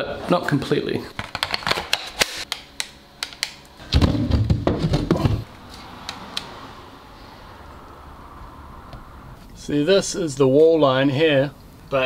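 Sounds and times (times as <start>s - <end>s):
heavy bumping and rumbling: 3.8s - 5.5s.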